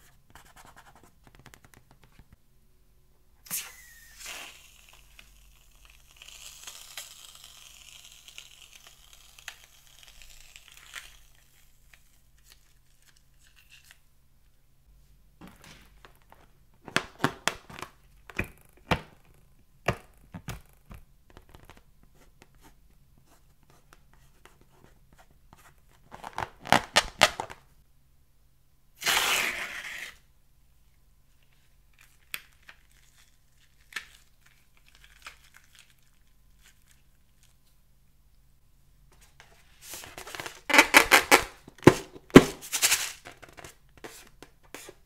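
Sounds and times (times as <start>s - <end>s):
faint hiss: 3.4s - 12.4s.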